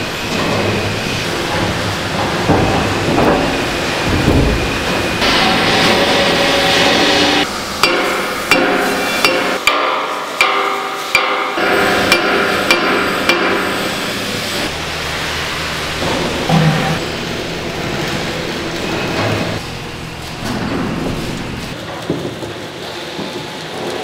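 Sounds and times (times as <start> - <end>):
workshop hum: 0.0 - 24.0
hammer striking steel: 1.5 - 14.7.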